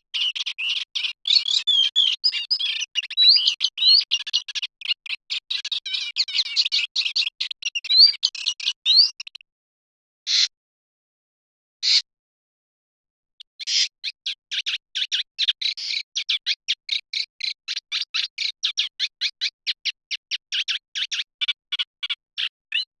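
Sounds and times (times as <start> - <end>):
warbler singing chirping notes: 0.0 - 9.4.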